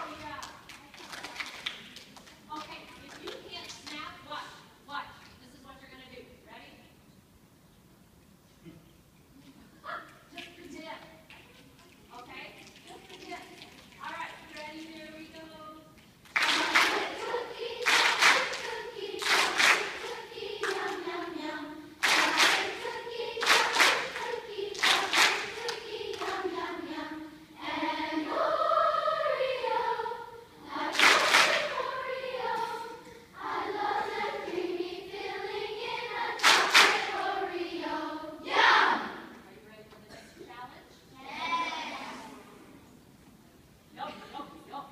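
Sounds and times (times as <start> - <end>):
children's choir singing warm-ups: 13.1 - 40.3, 41.1 - 43.3.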